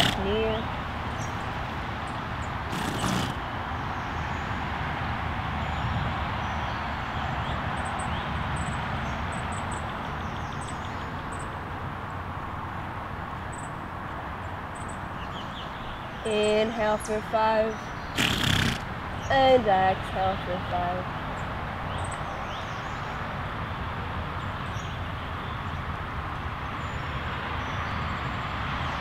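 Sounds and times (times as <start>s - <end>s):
small birds chirping: 0.0s - 4.6s, 5.6s - 11.6s, 14.4s - 26.0s
outdoor background noise: 0.0s - 29.0s.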